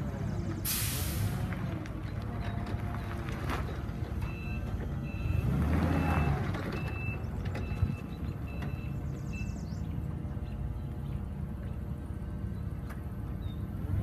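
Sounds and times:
forklift engine hum: 0.0s - 14.0s
forklift backup alarm beeping: 4.2s - 9.7s.

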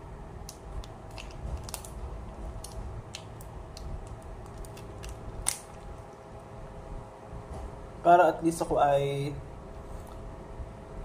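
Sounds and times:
plastic sachet tearing: 0.8s - 5.9s
plastic sachet crinkling: 0.8s - 6.0s.

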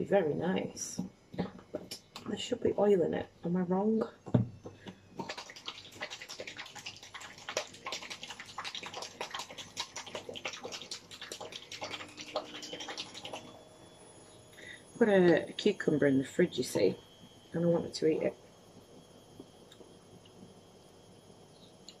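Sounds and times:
liquid sloshing in shaken pot: 5.1s - 13.5s.

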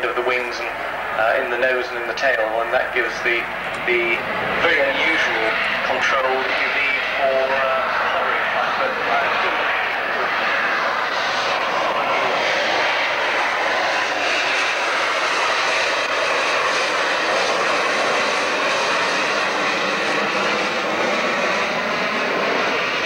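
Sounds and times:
jet engine roaring: 0.0s - 23.0s.

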